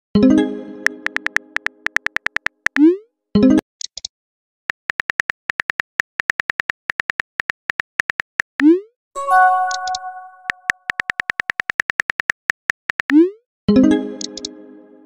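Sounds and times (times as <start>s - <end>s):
keyboard tap clicks: 0.8s - 2.8s, 9.6s - 13.1s, 14.2s - 14.5s.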